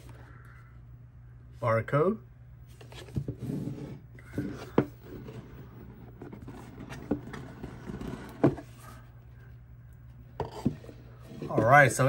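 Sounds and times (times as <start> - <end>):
cardboard box rustling: 4.5 - 8.9.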